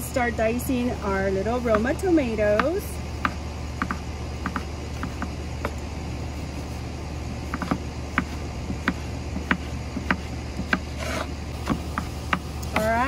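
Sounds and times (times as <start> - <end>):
knife chopping on a wooden board: 2.6 - 5.8, 7.4 - 13.0.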